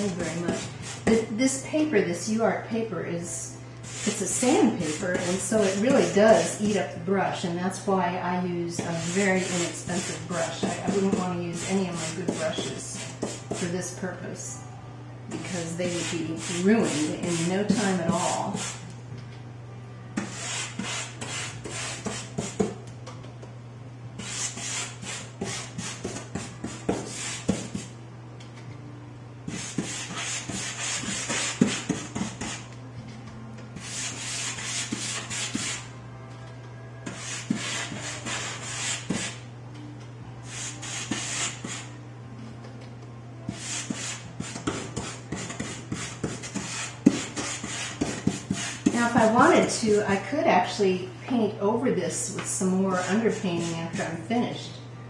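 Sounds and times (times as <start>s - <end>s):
brush scrubbing sanded paper: 9.0s - 12.4s.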